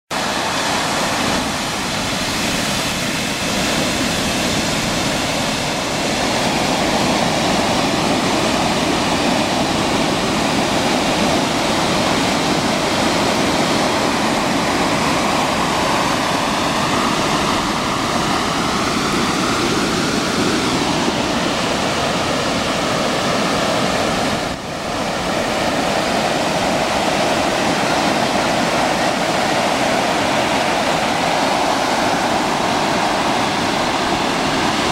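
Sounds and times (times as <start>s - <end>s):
surf breaking on sandy beach: 0.1s - 34.9s.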